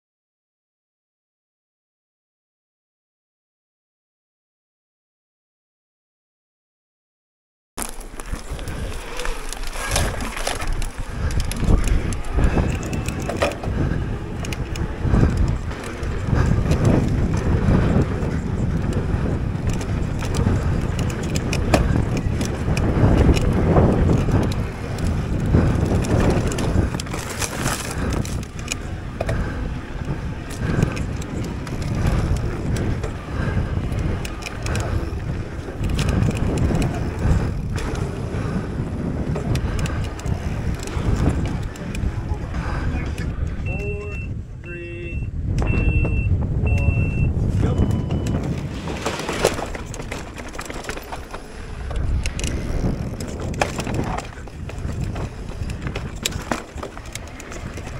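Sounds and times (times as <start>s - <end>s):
tyres crunching over dirt: 7.8s - 43.0s, 47.6s - 57.9s
bike clicks and rattles: 7.8s - 44.2s, 46.8s - 57.9s
wind on microphone: 7.8s - 57.9s.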